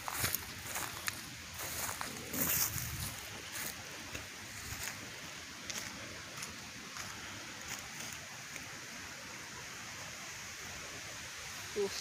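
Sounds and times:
footsteps crunching dry leaves: 0.0s - 8.7s
faint outdoor background noise: 0.0s - 12.0s.

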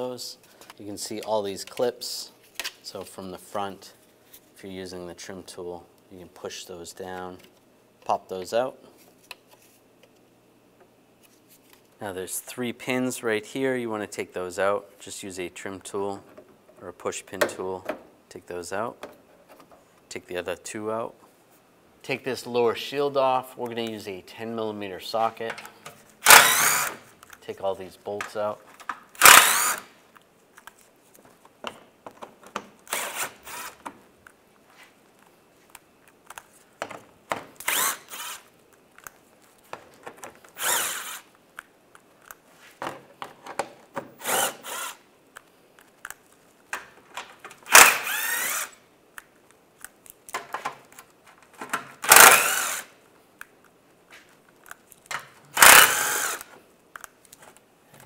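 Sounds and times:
small clicks and handling noise: 30.1s - 32.8s, 35.1s - 37.7s, 38.5s - 40.6s, 41.3s - 43.8s, 45.3s - 47.8s, 49.1s - 52.2s, 53.3s - 55.5s, 56.2s - 58.0s
power driver spinning bolts: 52.1s - 52.8s.

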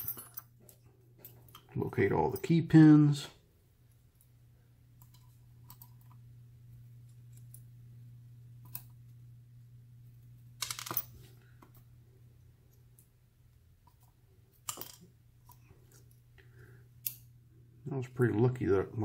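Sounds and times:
low steady hum: 0.0s - 19.0s
small metallic clicks of pins: 13.8s - 17.3s.

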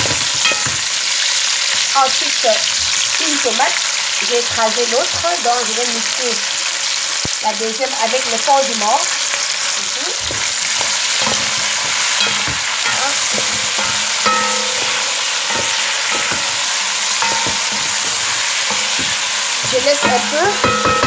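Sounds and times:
food sizzling in hot oil: 0.0s - 21.0s
wooden spoon scraping pot: 9.1s - 21.0s.

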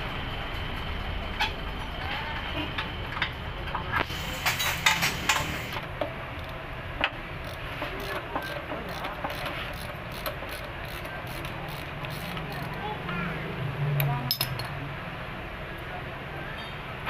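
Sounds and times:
ratchet wrench clicking: 6.4s - 6.6s, 7.4s - 12.9s.

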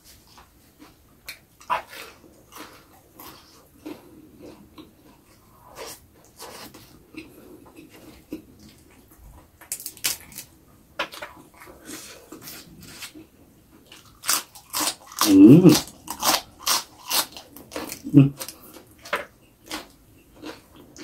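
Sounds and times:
crunchy biting and chewing: 0.8s - 9.0s, 13.8s - 21.0s
person humming: 15.2s - 15.8s, 18.0s - 18.4s.

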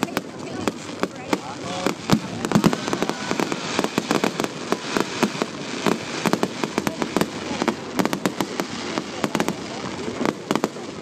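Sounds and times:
fireworks bursting and crackling: 0.0s - 11.0s.

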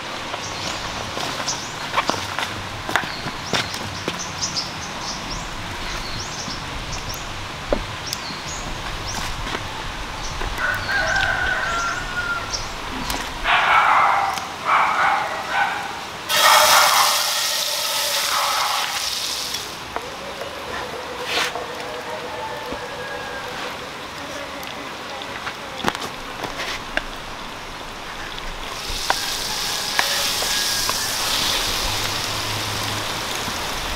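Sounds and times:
small birds chirping: 3.0s - 7.4s, 8.0s - 9.4s
rooster crowing: 10.6s - 12.7s, 16.3s - 19.2s, 20.7s - 24.0s, 29.0s - 31.8s
butter sizzling in a pan: 16.3s - 19.8s, 28.7s - 32.8s.

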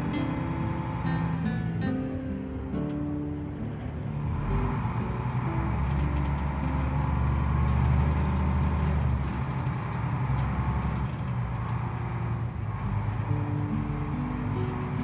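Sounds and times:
ferry diesel engine drone: 0.0s - 15.0s.

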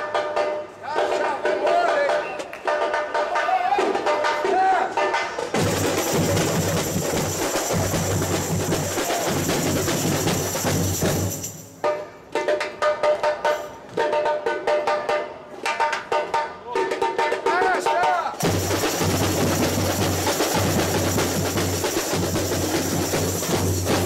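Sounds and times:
samba drum ensemble: 0.0s - 24.0s
sharp high-pitched drum strokes: 3.8s - 13.8s, 18.4s - 24.0s
bass drums beaten with mallets: 18.4s - 24.0s.

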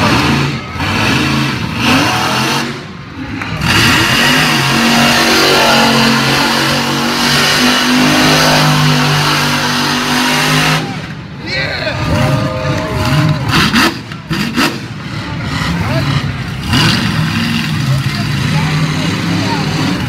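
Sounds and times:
monster truck engine revving: 0.0s - 20.0s.

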